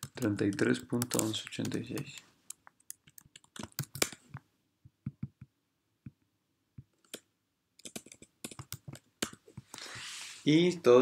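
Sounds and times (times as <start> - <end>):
computer keyboard tapping: 0.0 - 4.4, 5.0 - 5.5, 6.8 - 9.7
mouse clicking: 0.0 - 4.5.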